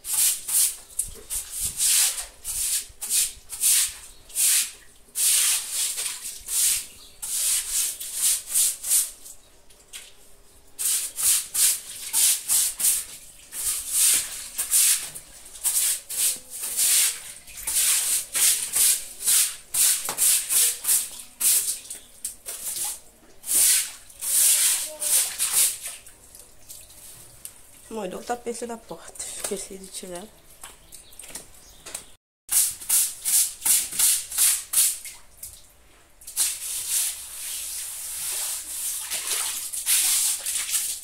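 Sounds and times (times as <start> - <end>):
stiff brush scrubbing concrete: 0.0 - 9.2, 10.8 - 21.8, 22.5 - 25.9, 36.4 - 41.0.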